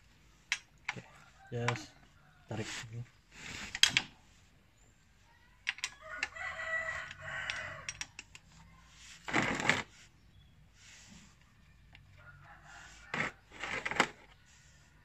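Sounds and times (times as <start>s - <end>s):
small metal clicks: 5.6s - 6.4s, 7.0s - 8.5s
rooster crowing: 5.9s - 8.0s, 12.1s - 13.6s.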